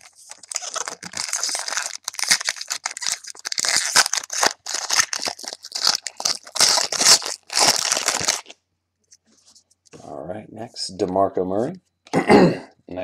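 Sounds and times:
wrapper crinkling and tearing: 0:00.0 - 0:08.5.

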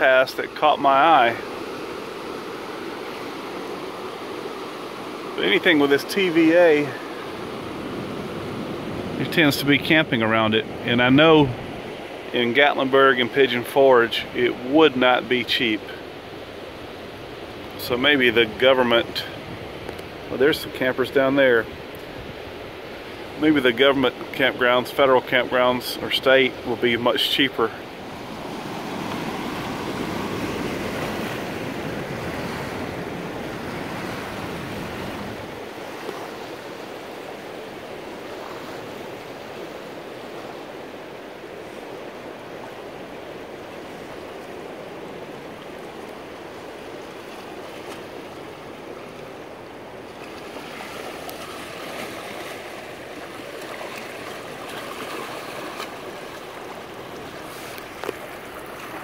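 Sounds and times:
water rushing against rocks: 0:00.0 - 0:13.7, 0:26.4 - 0:59.0.

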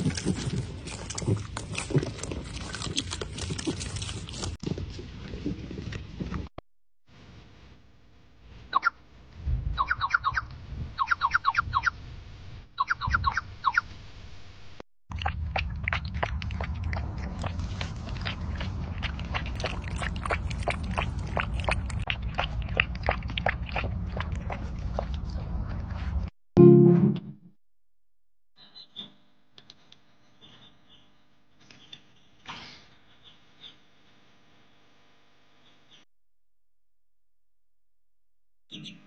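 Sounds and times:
duckling peeping: 0:09.8 - 0:10.4, 0:11.0 - 0:11.9
puppy lapping water: 0:15.1 - 0:26.3
low rumble: 0:15.1 - 0:27.4.

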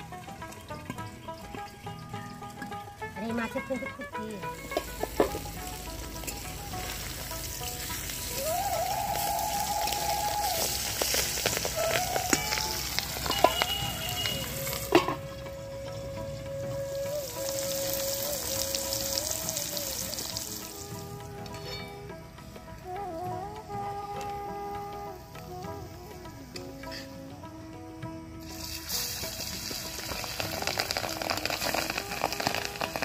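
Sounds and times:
fish sizzling in hot oil: 0:04.6 - 0:15.2, 0:16.9 - 0:20.8, 0:28.4 - 0:33.0.

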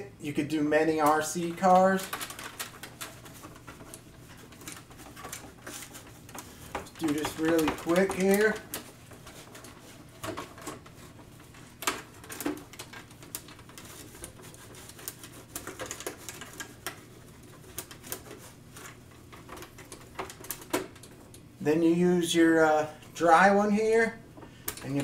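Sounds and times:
cloth wiping plastic body: 0:00.8 - 0:20.4.

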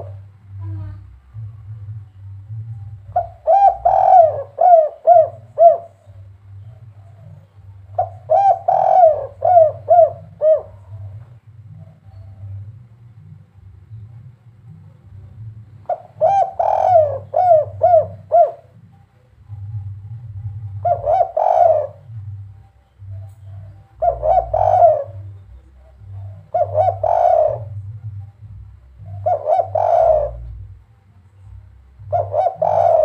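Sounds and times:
dove cooing: 0:00.0 - 0:33.0.

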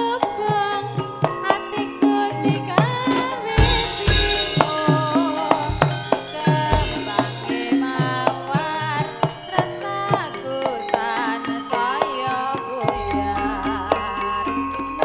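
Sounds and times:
woman singing wavering line: 0:00.0 - 0:15.0
hand drum strokes: 0:02.5 - 0:09.4
metallophones struck with mallets: 0:02.8 - 0:09.5.

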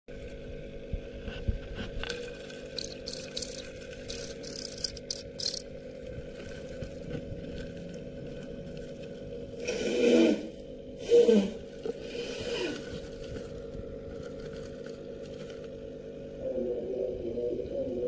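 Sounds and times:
steady low hum: 0:00.1 - 0:18.0
cricket chirping: 0:02.7 - 0:05.7.

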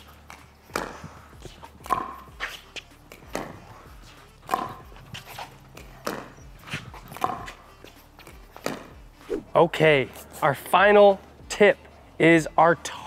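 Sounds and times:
ball bouncing on hard court: 0:00.3 - 0:07.6, 0:08.2 - 0:09.4
ball popping off paddles: 0:04.4 - 0:04.9, 0:06.0 - 0:07.6.

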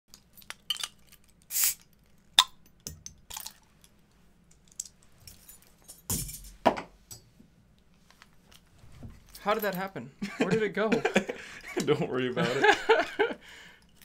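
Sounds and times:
bottle cap hissing: 0:01.5 - 0:02.6
bottle opener clinking on caps: 0:02.4 - 0:03.6.

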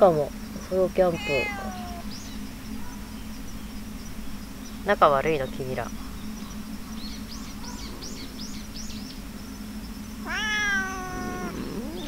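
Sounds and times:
cat meowing: 0:01.0 - 0:02.1, 0:10.2 - 0:12.0.

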